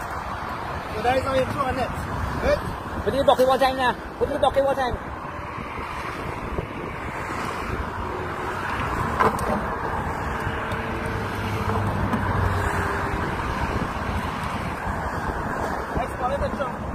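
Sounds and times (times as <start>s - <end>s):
passing vehicles rushing: 0.0s - 16.9s
wind buffeting microphone: 0.0s - 16.9s.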